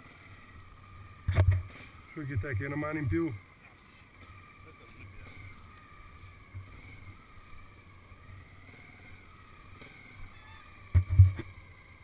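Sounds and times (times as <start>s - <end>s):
motorcycles idling: 0.0s - 12.0s
wind on microphone: 1.1s - 3.4s, 10.0s - 11.6s.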